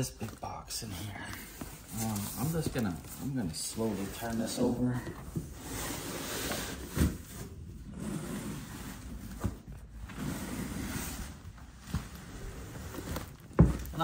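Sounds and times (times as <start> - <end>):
cardboard and plastic rustling: 0.0 - 14.0
box thumping on wooden floor: 13.5 - 14.0.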